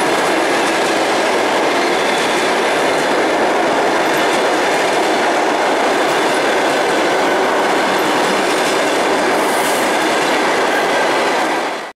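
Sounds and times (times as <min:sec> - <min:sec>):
train wheels rolling on rails: 0:00.0 - 0:11.9.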